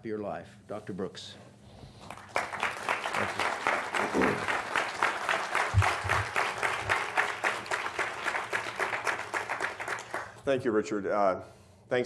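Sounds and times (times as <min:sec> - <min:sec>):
audience applauding: 0:02.0 - 0:10.4.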